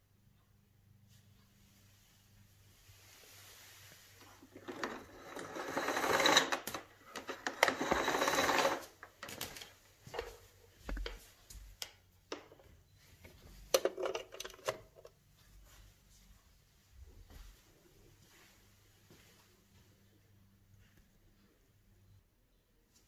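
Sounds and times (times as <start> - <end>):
vacuum cord reel rattling whir: 4.5 - 9.0.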